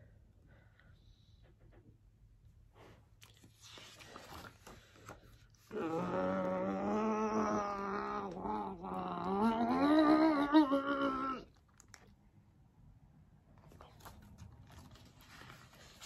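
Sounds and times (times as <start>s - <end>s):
woman straining hum: 5.7s - 11.5s.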